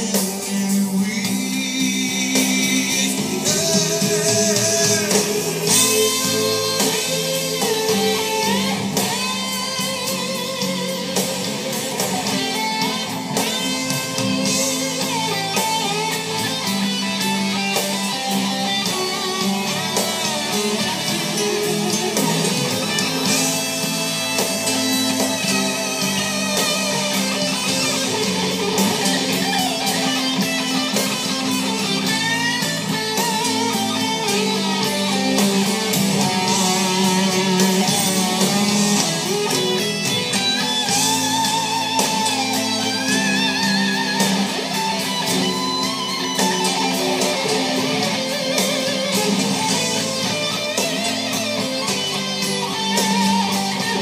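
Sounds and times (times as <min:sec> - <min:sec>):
electric guitar lead line: 0:00.0 - 0:54.0
live rock band music: 0:00.0 - 0:54.0.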